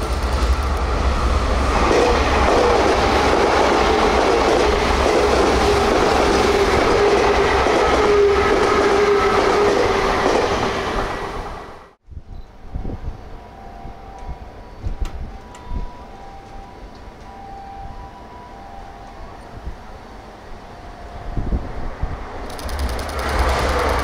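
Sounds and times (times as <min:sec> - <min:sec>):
train wheels rumbling on rail: 0:00.0 - 0:11.7, 0:21.4 - 0:24.0.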